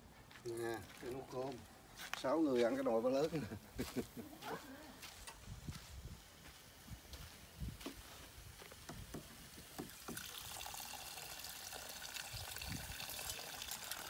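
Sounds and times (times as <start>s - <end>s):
water pouring into metal pot: 9.9s - 14.0s.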